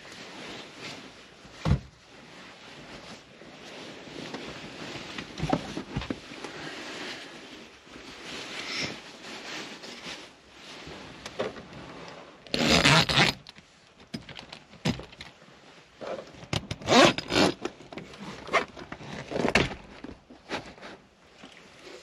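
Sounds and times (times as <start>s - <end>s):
fabric rustling: 0.0s - 14.1s
zipper being pulled: 12.5s - 13.5s, 16.8s - 17.6s.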